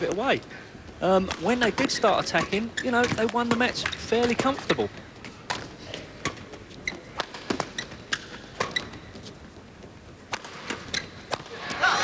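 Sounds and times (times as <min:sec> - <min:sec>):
shoes squeaking on court: 0:00.9 - 0:12.0
racket hitting shuttlecock: 0:01.2 - 0:04.8, 0:05.4 - 0:09.1, 0:10.3 - 0:12.0.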